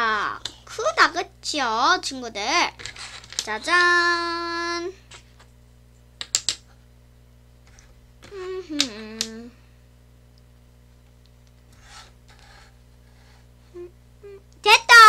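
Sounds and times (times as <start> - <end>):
puzzle pieces clicking on board: 6.2 - 6.6
child humming: 8.2 - 9.6, 13.6 - 14.6.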